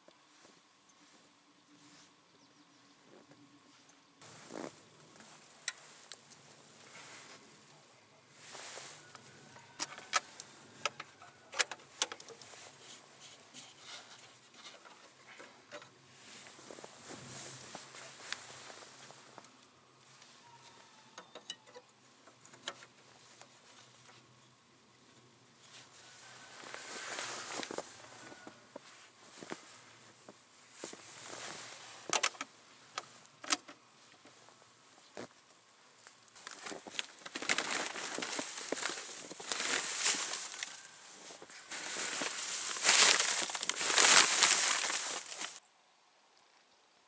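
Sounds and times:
waterproof jacket rustling: 26.6s - 30.0s, 36.5s - 45.6s.

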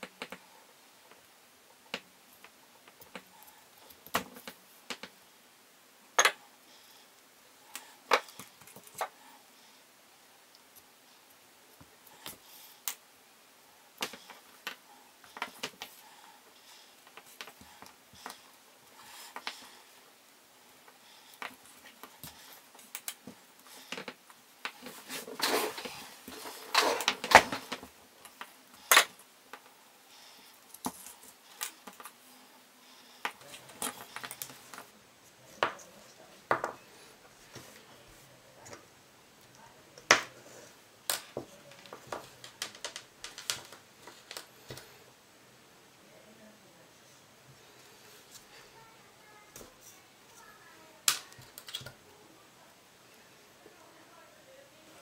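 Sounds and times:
rustling and scraping: 20.8s - 28.9s, 29.5s - 38.8s.

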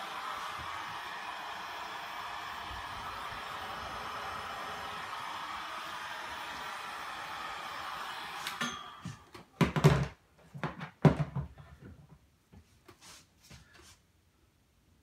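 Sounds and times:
hot-air blower running: 0.0s - 9.4s.

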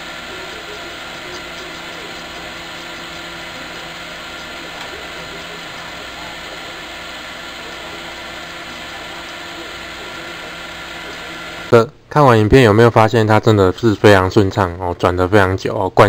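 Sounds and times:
spool spinning with even whir: 0.0s - 11.7s.

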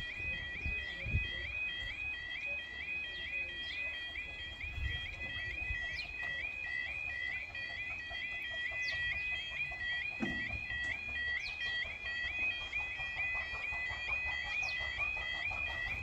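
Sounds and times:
level crossing two-tone alarm: 0.0s - 16.0s
knock: 10.2s - 10.6s.

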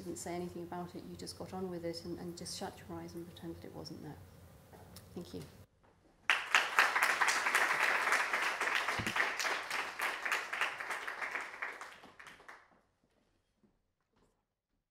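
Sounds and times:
audience applauding: 6.3s - 12.7s.

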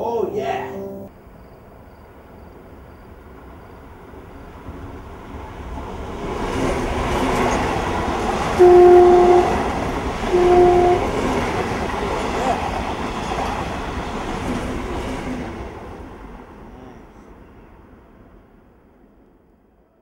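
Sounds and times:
train running noise: 2.2s - 16.7s
train horn blast: 8.6s - 11.4s.

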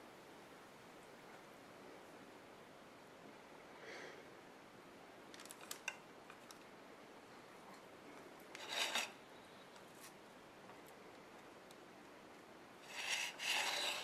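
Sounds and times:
faint rubbing and scraping: 8.5s - 10.2s, 12.8s - 14.0s.

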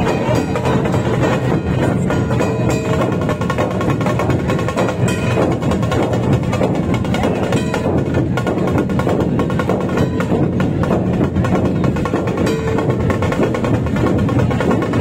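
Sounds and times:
drum group beating loud rhythm: 0.0s - 15.0s.

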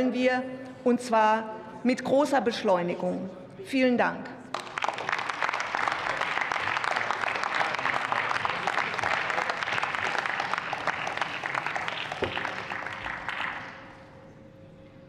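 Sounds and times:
crowd applauding: 4.5s - 14.2s.

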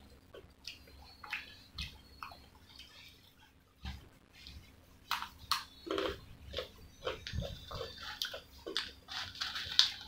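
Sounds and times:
chewing french fries: 5.1s - 10.0s.

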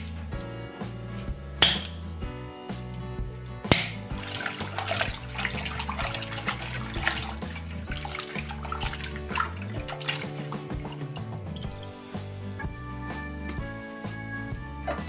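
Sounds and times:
background music: 0.0s - 15.0s
water splashing in a bowl: 3.7s - 12.0s.

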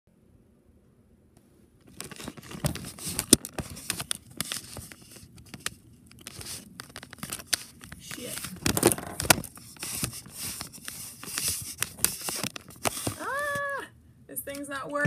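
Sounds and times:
phone rustling against microphone: 1.8s - 13.7s.

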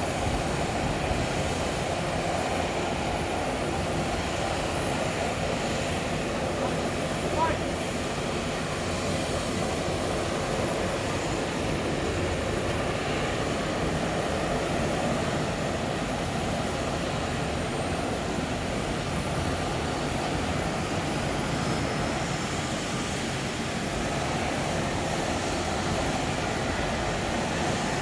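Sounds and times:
jet airliner rumble: 0.0s - 28.0s.

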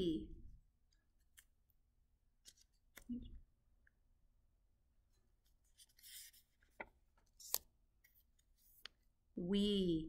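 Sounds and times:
paper sliding: 5.6s - 7.7s.

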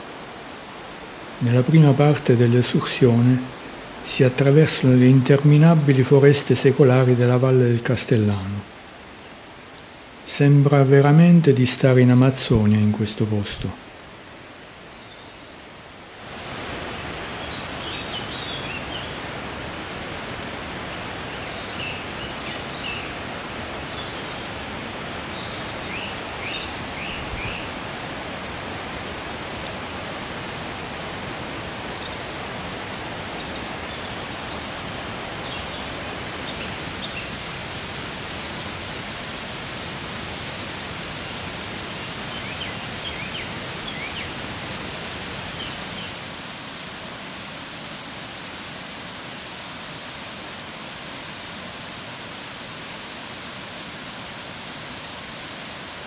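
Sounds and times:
small birds chirping: 8.2s - 9.4s, 16.2s - 29.5s, 31.1s - 39.4s, 41.1s - 46.8s
steady rushing noise: 22.1s - 56.0s.

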